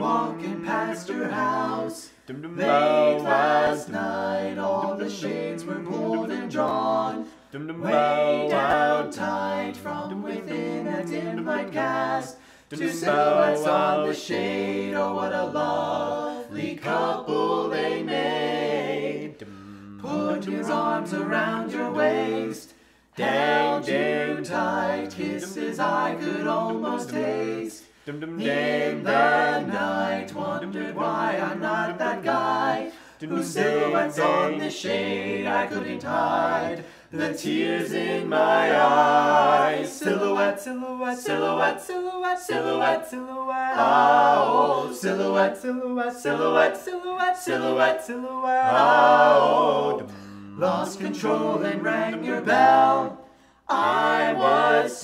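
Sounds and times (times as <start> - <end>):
vocal group singing in harmony: 0.0 - 55.0.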